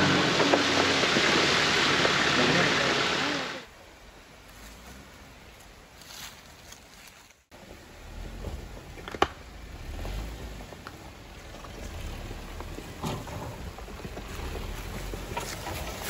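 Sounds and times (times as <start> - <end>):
off-road vehicle rumble: 0.0 - 16.0.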